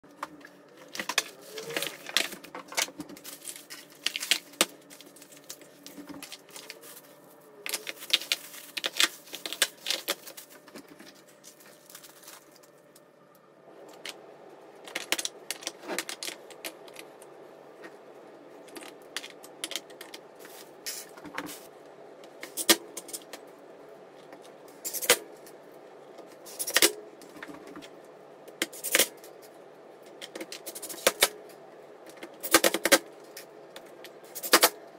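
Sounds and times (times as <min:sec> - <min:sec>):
faint steady hum: 0:00.0 - 0:34.9
cardboard and plastic packaging rustling: 0:00.2 - 0:13.1, 0:18.6 - 0:21.7.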